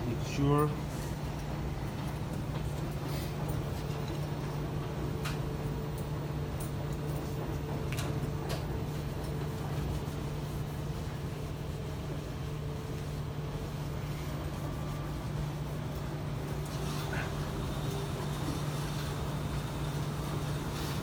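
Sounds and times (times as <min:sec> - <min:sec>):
laundromat machines humming: 0:00.0 - 0:21.0.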